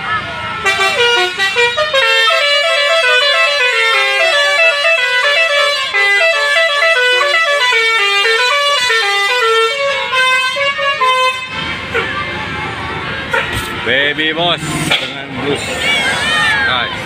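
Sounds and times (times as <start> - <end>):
musical bus horn melody: 0.6 - 12.1.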